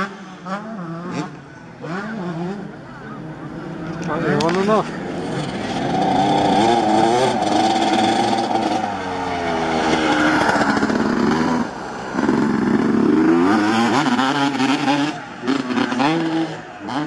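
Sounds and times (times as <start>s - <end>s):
motocross bike revving: 0.0s - 17.0s.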